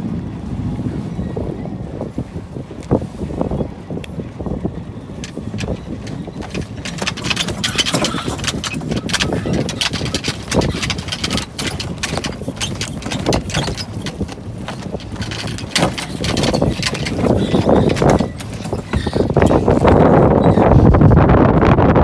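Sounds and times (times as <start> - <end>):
water noise: 0.0 - 22.0
wind rushing on microphone: 0.0 - 22.0
clicking and knocking deck gear: 5.2 - 20.6.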